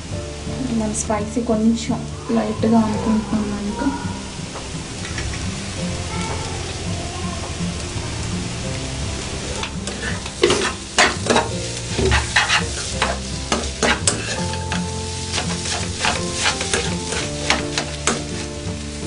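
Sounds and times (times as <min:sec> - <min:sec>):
background music: 0:00.0 - 0:19.0
food sizzling: 0:00.0 - 0:19.0
spoon scraping frying pan: 0:09.6 - 0:18.7.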